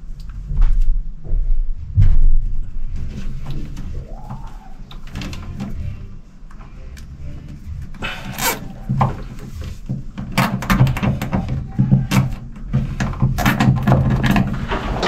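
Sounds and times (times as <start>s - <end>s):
low hum: 0.0s - 10.2s.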